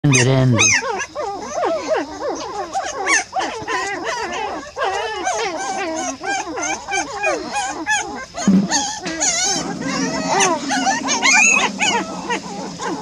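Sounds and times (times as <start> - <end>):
puppies whining and squealing: 0.0 - 13.0
deeper sound: 8.4 - 13.0.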